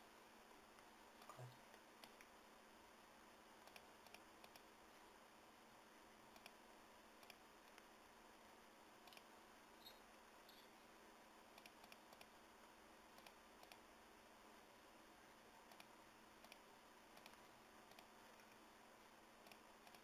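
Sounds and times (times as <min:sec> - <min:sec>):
low steady hiss: 0:00.0 - 0:20.0
computer mouse clicks: 0:00.8 - 0:02.3, 0:03.6 - 0:04.7, 0:06.3 - 0:06.6, 0:07.2 - 0:07.9, 0:09.0 - 0:10.7, 0:11.5 - 0:12.4, 0:13.1 - 0:13.9, 0:15.6 - 0:18.6, 0:19.4 - 0:20.0.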